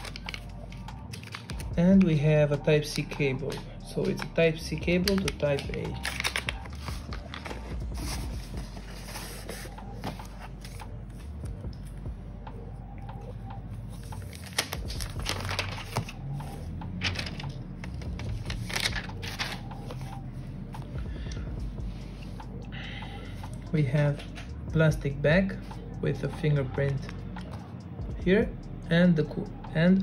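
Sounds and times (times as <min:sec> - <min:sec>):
plastic wrap crinkling: 0:00.0 - 0:01.7, 0:05.1 - 0:09.6.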